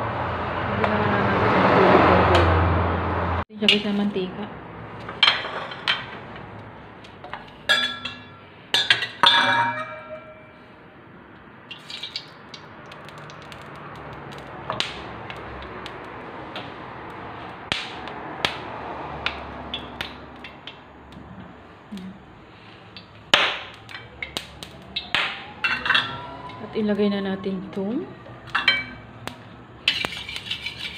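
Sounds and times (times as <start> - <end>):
hot oil hissing in a wok: 11.7 - 18.6
oil clicking and popping: 11.7 - 21.3.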